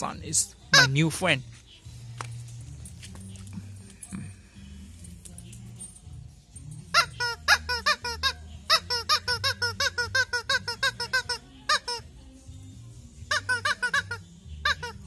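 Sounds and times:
rubber squeak toy squeaking: 0.7s - 1.2s, 6.9s - 12.1s, 13.2s - 15.0s.

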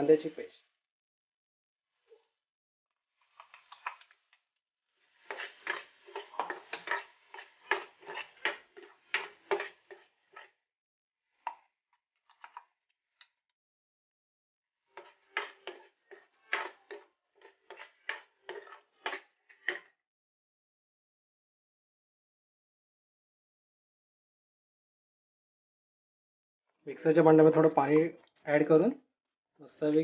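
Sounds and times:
metal ladle scraping and clinking jar: 5.2s - 10.5s, 14.9s - 19.9s.

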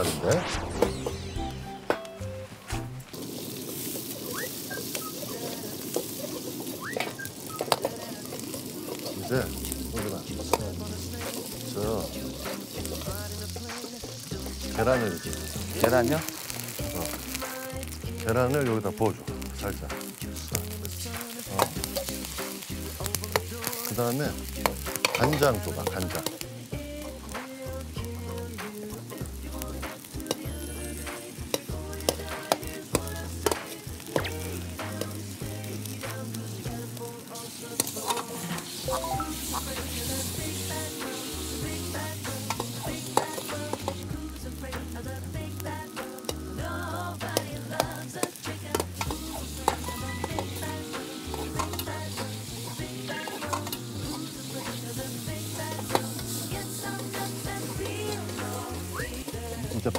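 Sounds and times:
light background music: 0.0s - 3.2s, 7.5s - 59.9s
eggs sizzling in a wok: 0.0s - 59.9s
ladle clicking against wok: 24.6s - 26.4s, 51.6s - 52.3s, 53.3s - 54.2s
metal ladle scraping wok: 48.7s - 59.4s.

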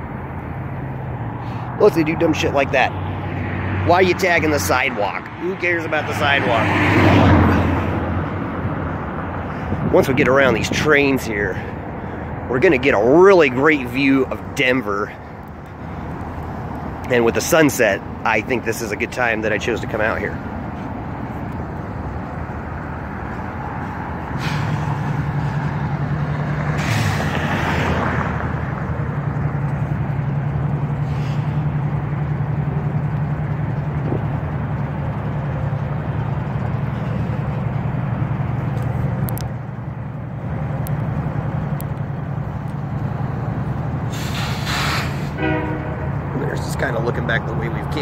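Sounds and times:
diesel locomotive idling: 7.3s - 27.4s, 28.2s - 48.0s
burst of hiss: 44.1s - 45.4s.

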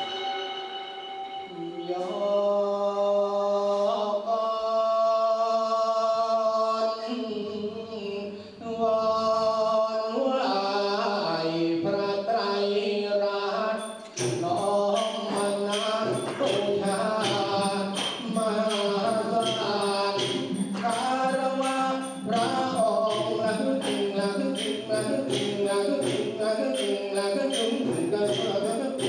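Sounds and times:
man chanting into a microphone: 1.5s - 29.0s
steady rhythmic tapping: 13.7s - 29.0s.

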